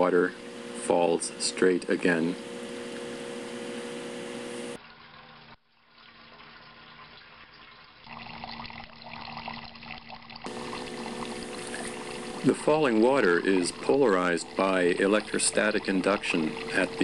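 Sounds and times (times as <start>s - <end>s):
water trickling into metal buckets: 4.8s - 17.0s
steady low hum: 10.5s - 17.0s.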